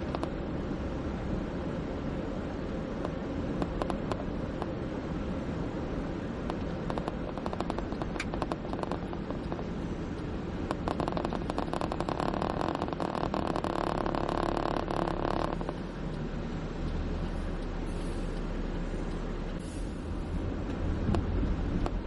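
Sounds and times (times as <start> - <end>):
car road noise from cabin: 0.0 - 22.0
small clicks and rattles: 3.6 - 4.7, 6.5 - 15.8.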